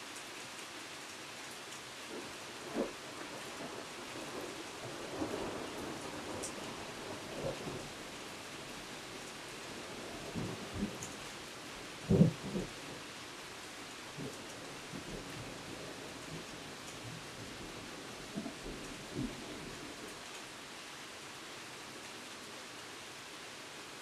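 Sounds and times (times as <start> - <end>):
steady rain: 0.0 - 24.0
thunder rumbling: 2.6 - 8.9, 9.6 - 11.2, 12.0 - 12.9, 14.2 - 20.0.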